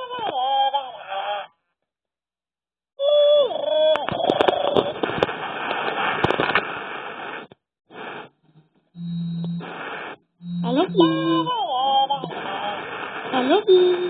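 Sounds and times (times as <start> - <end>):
crackly hiss with clicks: 3.9 - 10.2, 12.1 - 13.7
noisy bursts: 4.1 - 14.0
steady low hum: 5.0 - 14.0
electronic toy chirpy call: 10.4 - 12.3.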